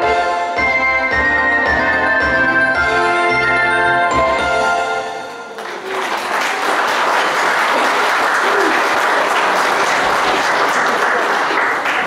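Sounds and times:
audience applause: 5.3 - 12.0.

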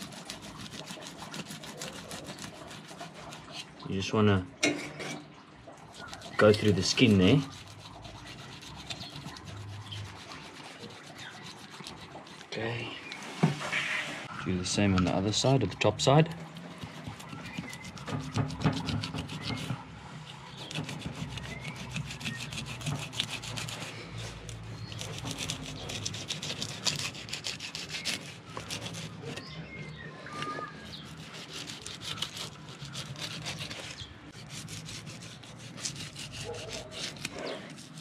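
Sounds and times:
knife cutting through fish skin: 0.0 - 3.7, 6.0 - 12.5, 16.4 - 19.8, 20.4 - 29.5, 31.0 - 38.0.

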